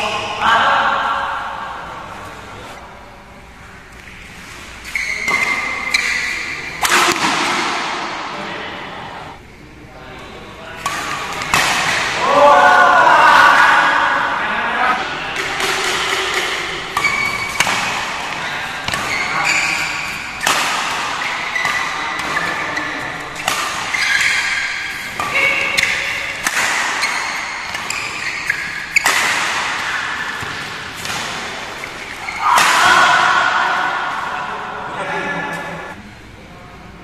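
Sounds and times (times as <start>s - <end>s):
voices: 0.0s - 37.0s
shoes squeaking on court: 3.9s - 6.8s, 16.8s - 32.6s
rackets striking shuttlecock: 5.3s - 8.3s, 10.8s - 12.2s, 15.3s - 34.1s.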